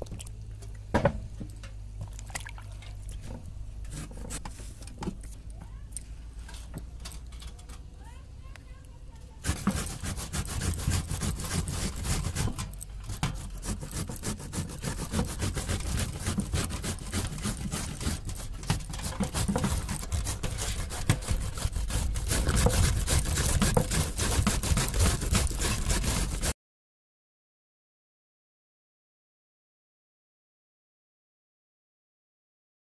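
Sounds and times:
grater rasping scrapes: 3.8 - 4.6, 9.4 - 26.5.

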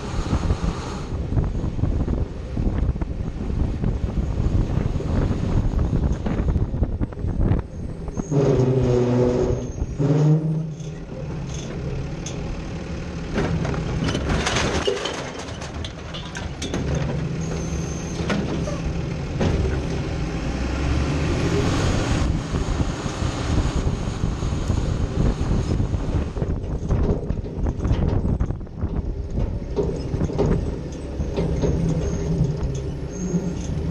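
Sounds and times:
garbage truck engine revving: 4.1 - 33.9
recyclables clattering into hopper: 13.4 - 18.8.

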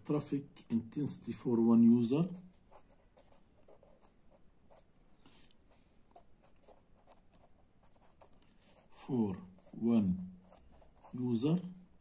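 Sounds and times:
pen writing on paper: 2.6 - 4.1.

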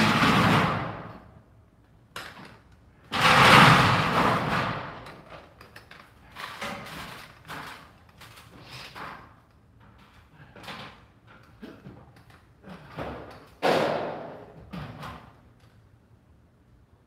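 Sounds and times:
loud bang: 0.0 - 1.3, 3.1 - 5.0, 13.6 - 14.5.

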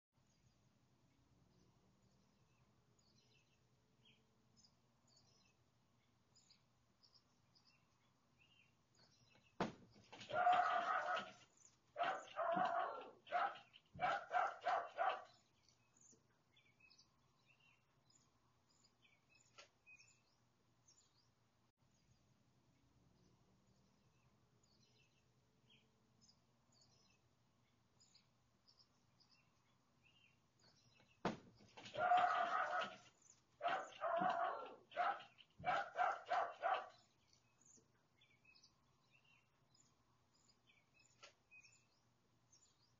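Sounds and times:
birds chirping faintly: 0.2 - 42.9
dog barking: 10.3 - 11.4, 12.0 - 15.4, 31.9 - 37.1.

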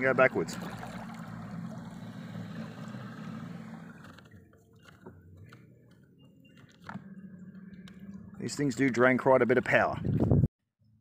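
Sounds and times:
propeller churning water: 0.0 - 4.6
electric motor humming: 0.6 - 4.4.

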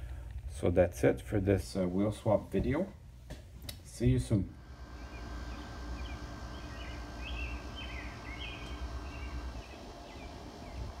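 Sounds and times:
small birds chirping: 4.7 - 11.0.

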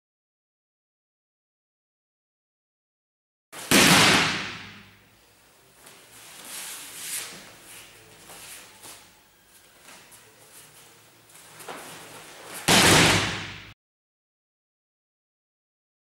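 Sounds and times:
bare feet shuffling on mats: 5.7 - 12.8
body landing on mat: 11.6 - 13.7.

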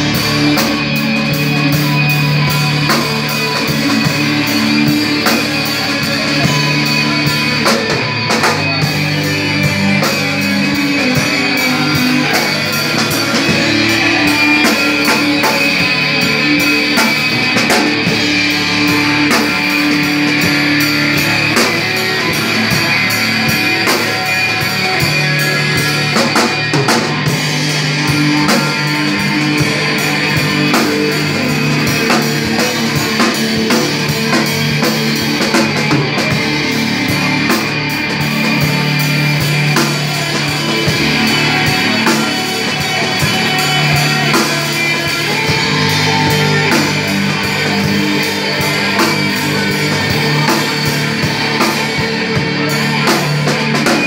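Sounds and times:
drum kit with cymbals: 0.0 - 54.0
electric guitar: 0.0 - 54.0.

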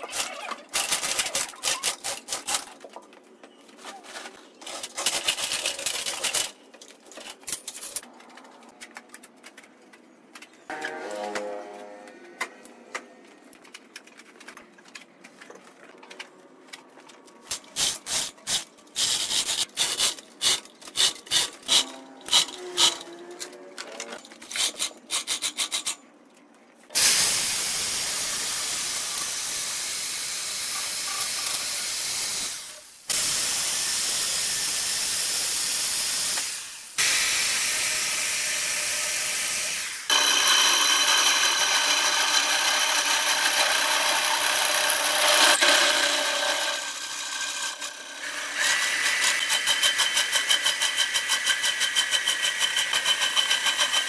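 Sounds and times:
reciprocating saw cutting wood: 37.7 - 54.0
lathe tool rasping wood: 40.1 - 54.0.

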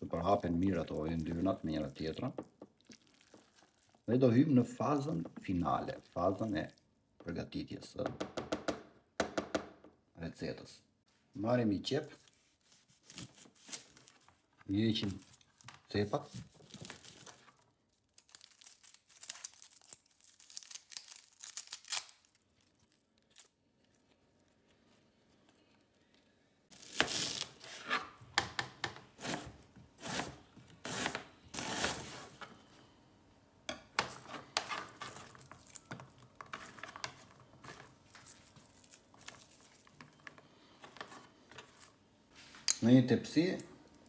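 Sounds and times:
onion skin crackling and tearing: 2.8 - 4.1, 12.7 - 27.8, 34.9 - 40.3
knife slicing on cutting board: 29.2 - 32.3.

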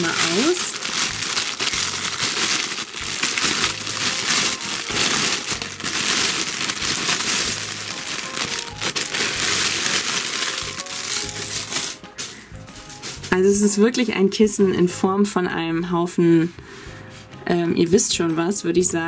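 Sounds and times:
plastic film crinkling: 0.0 - 14.1.

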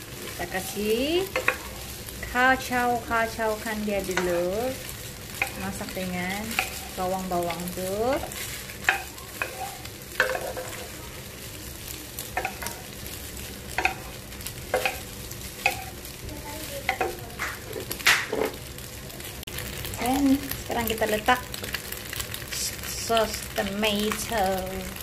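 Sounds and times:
food sizzling in a pan: 0.0 - 25.0
spatula scraping and knocking pan: 0.4 - 1.9, 4.0 - 10.9, 12.3 - 12.9, 13.7 - 16.1, 16.8 - 18.6.

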